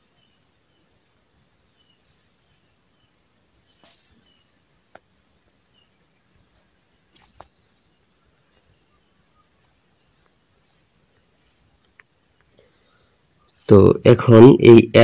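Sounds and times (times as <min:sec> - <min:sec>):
faint background hiss: 0:00.0 - 0:15.0.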